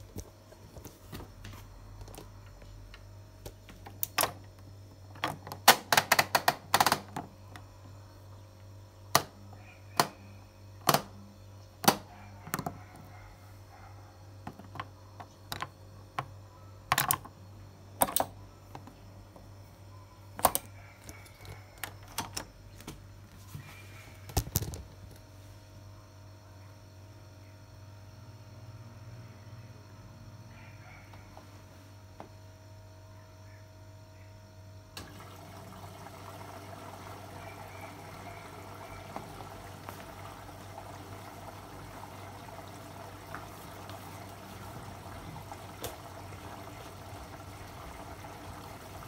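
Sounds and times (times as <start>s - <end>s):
low steady hum: 0.0s - 49.0s.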